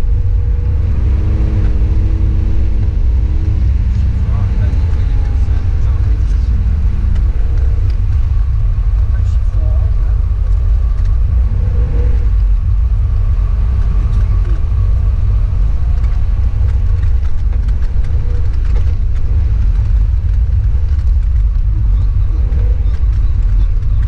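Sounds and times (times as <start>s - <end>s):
car engine rumble: 0.0s - 24.0s
tyres on snowy road: 0.0s - 24.0s.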